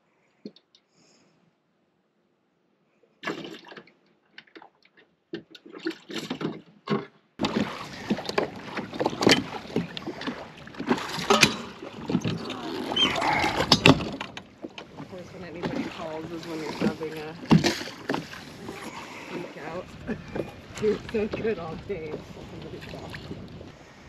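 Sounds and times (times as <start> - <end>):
water lapping: 3.2 - 24.0
fishing gear clattering in boat: 5.3 - 23.6
knocks against boat: 6.3 - 12.6, 13.5 - 18.8.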